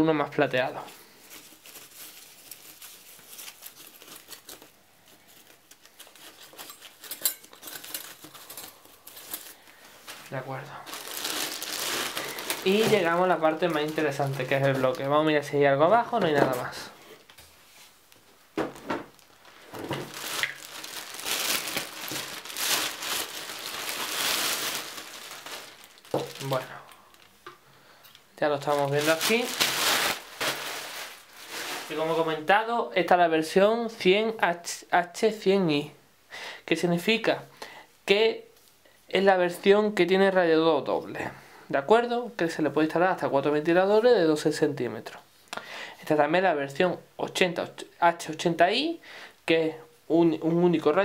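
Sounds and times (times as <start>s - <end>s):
plastic packaging crinkling: 0.9s - 15.4s, 18.7s - 27.4s, 28.4s - 32.5s.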